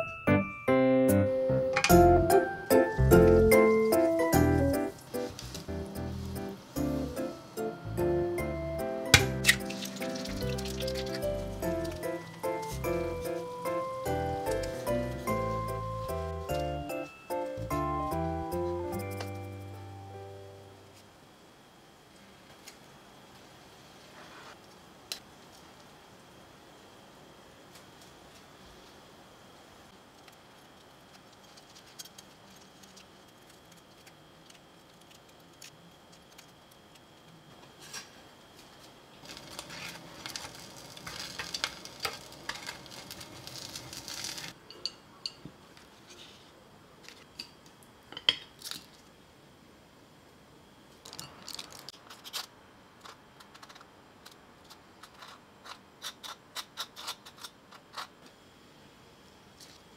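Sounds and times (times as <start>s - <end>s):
egg sizzling in a pan: 9.2s - 11.7s, 39.2s - 44.6s.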